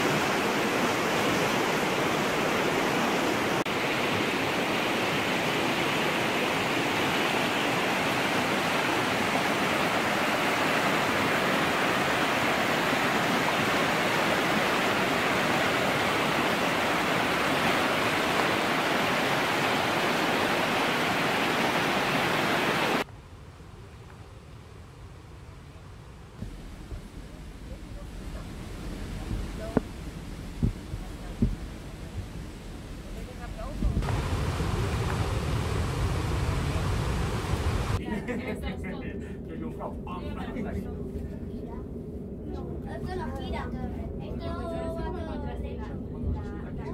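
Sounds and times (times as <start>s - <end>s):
river rushing: 0.0s - 23.1s, 26.6s - 38.0s.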